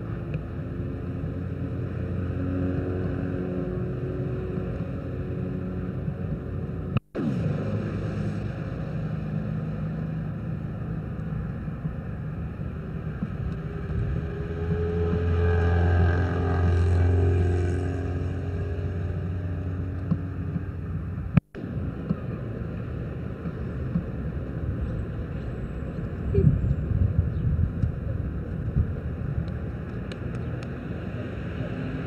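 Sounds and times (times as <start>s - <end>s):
vehicle engine passing: 0.0s - 24.2s
steady outdoor rumble: 0.0s - 32.0s.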